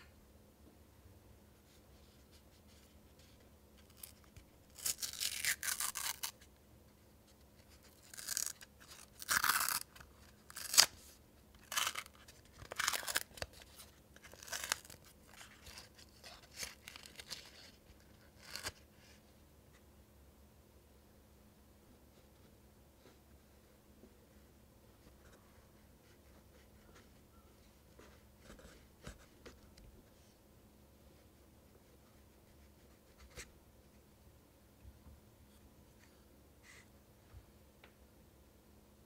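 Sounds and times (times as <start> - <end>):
paper crinkling and tearing: 3.8 - 6.4, 7.7 - 18.8.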